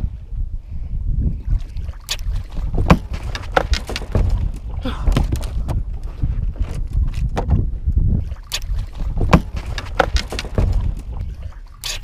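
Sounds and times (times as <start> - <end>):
wind buffeting microphone: 0.0 - 12.0
water splashing beside boat: 1.4 - 12.0.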